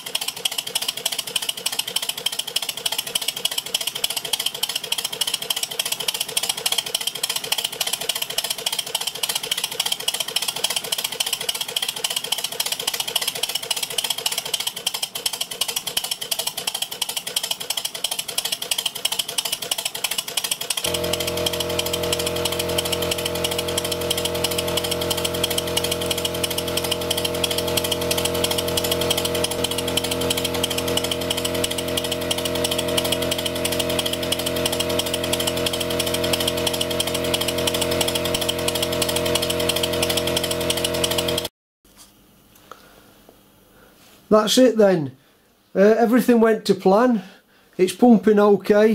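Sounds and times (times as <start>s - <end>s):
mechanical clatter: 0.0s - 41.5s
rapid steam exhaust beat: 20.7s - 41.5s
steady low hum: 20.8s - 44.4s.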